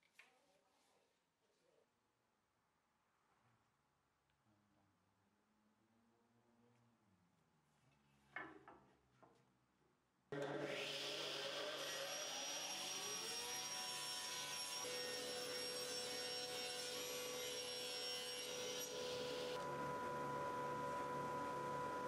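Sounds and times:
table saw whining: 10.4s - 22.0s.

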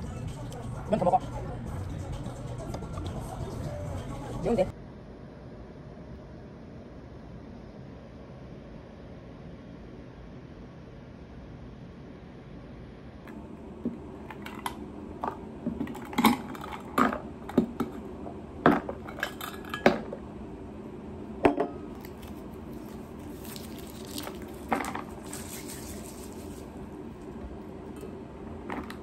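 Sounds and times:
soft stirring with hiss: 21.9s - 29.0s.

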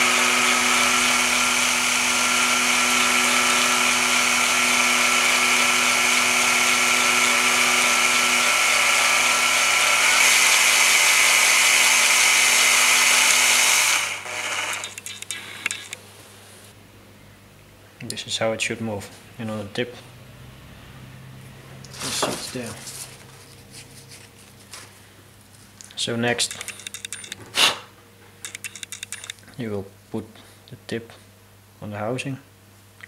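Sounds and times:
electric drill running: 0.0s - 16.0s, 26.5s - 27.4s, 28.4s - 29.4s.

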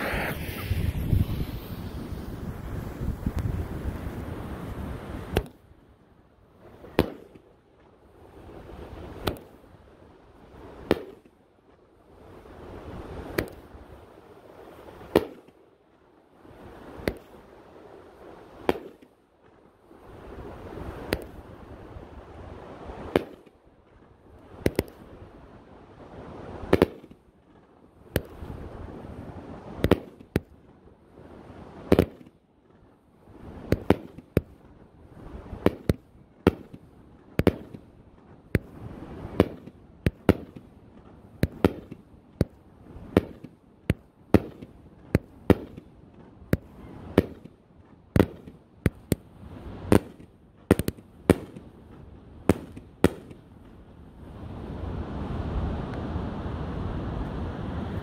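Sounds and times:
fireworks bangs: 0.0s - 5.6s, 31.8s - 32.3s, 33.5s - 34.6s, 35.3s - 47.6s, 48.2s - 53.5s
fireworks rushing hiss: 0.0s - 5.6s, 38.6s - 42.1s.

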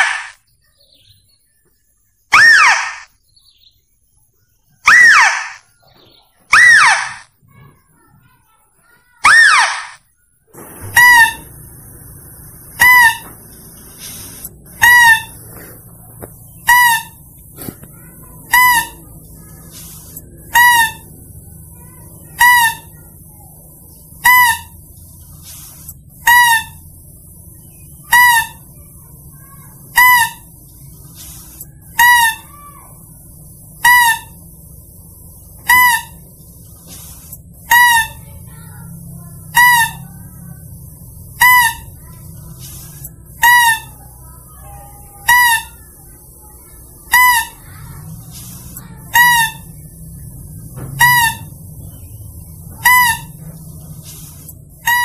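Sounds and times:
high clear lure call: 12.7s - 23.3s, 35.6s - 49.7s.

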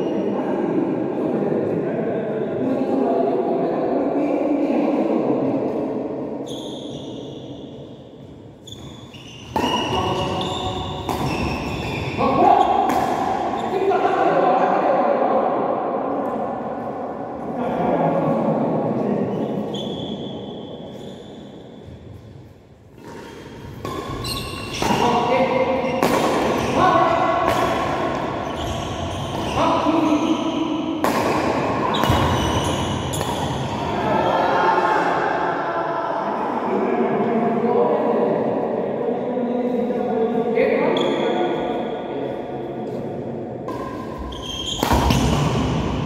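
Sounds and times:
shoes squeaking on court floor: 6.4s - 12.8s, 19.3s - 26.8s, 27.5s - 30.8s, 31.8s - 33.8s, 43.7s - 45.7s
court sounds: 7.2s - 14.4s, 19.4s - 35.4s, 40.9s - 46.0s
rackets hitting shuttlecock: 8.7s - 11.9s, 12.8s - 13.6s, 23.0s - 29.5s, 30.9s - 33.9s, 43.6s - 46.0s.

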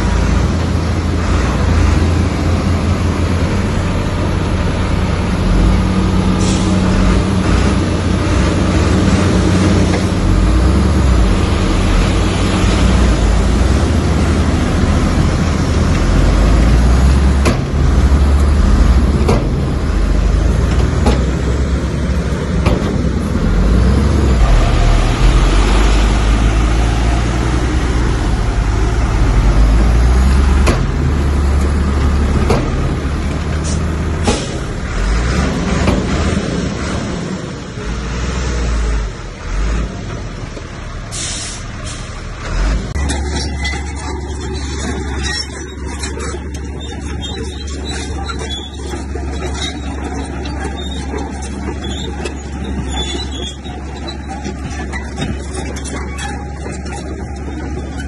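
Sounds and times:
heavy diesel machinery rumbling: 0.0s - 58.0s.

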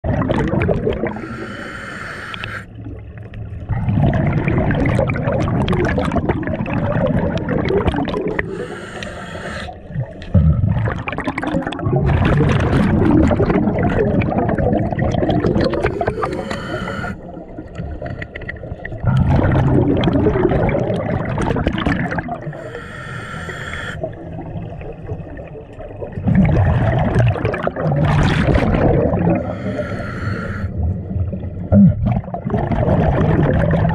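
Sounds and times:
rush of bubbles: 0.0s - 1.6s, 2.4s - 22.8s, 24.0s - 33.9s
diver breathing underwater: 0.9s - 2.8s, 8.0s - 10.1s, 15.4s - 18.5s, 22.0s - 24.2s, 28.6s - 30.9s.

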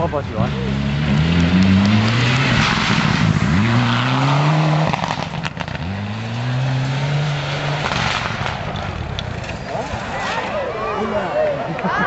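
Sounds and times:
car engine revving through gears: 0.3s - 8.8s
sharp exhaust cracks: 1.0s - 10.4s.

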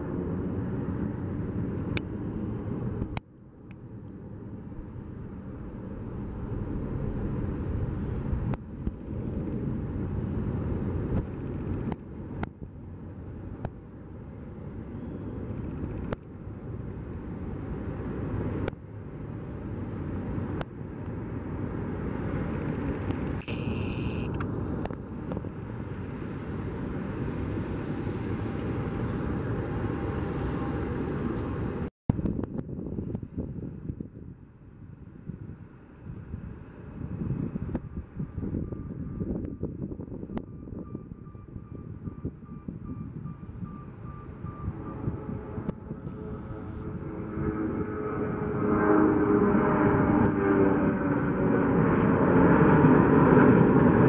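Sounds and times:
jet airliners taxiing rumble: 0.0s - 54.0s
brief high tone: 23.5s - 24.3s.

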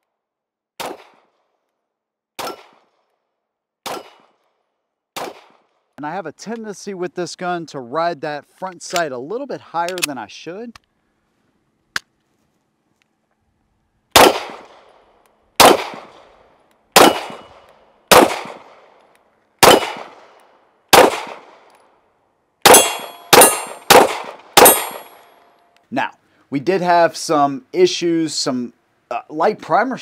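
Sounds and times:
pistol shots: 0.8s - 1.5s, 2.4s - 3.1s, 3.8s - 4.5s, 5.1s - 5.7s, 14.1s - 15.0s, 15.6s - 19.0s, 19.6s - 21.7s, 22.6s - 25.3s
steel targets ringing: 22.7s - 23.9s, 24.6s - 25.4s.

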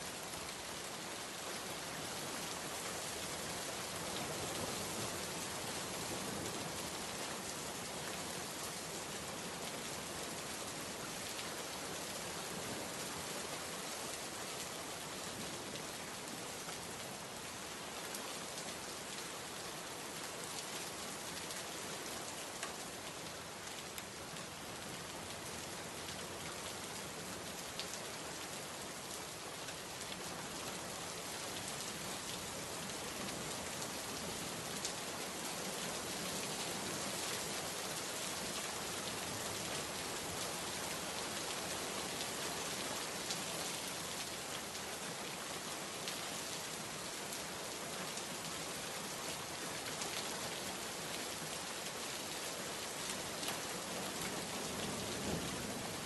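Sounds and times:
heavy rain pouring: 28.8s - 56.0s.

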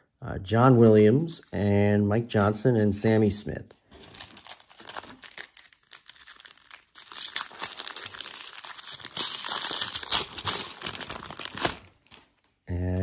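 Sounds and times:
foil wrapper crinkling: 4.0s - 12.5s.

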